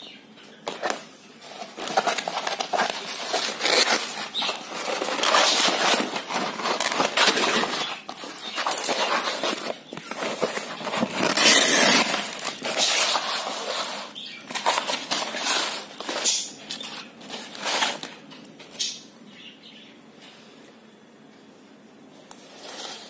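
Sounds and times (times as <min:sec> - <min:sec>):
canvas ripping: 0:11.1 - 0:12.6.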